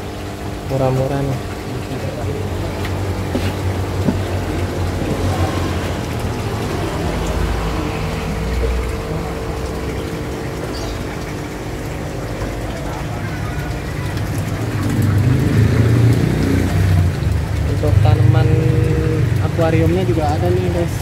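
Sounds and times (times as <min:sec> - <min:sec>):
aquarium filter running water: 0:00.0 - 0:21.0
water bubbling: 0:00.0 - 0:21.0
low hum: 0:01.6 - 0:18.1.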